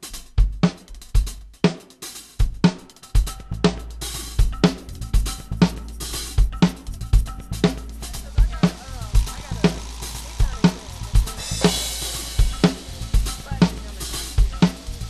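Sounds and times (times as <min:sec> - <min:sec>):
drum kit beat: 0:00.0 - 0:15.0
hi-hat and cymbals: 0:00.0 - 0:15.0
low bass: 0:03.3 - 0:15.0.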